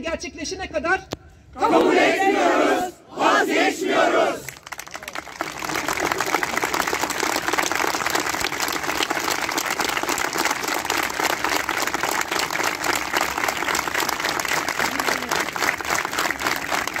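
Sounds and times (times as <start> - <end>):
crowd applauding: 4.4 - 17.0.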